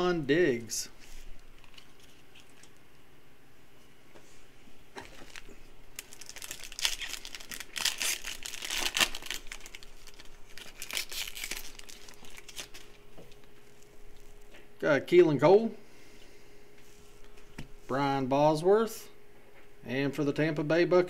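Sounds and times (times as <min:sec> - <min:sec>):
foil wrapper crinkling and tearing: 0:05.0 - 0:13.0.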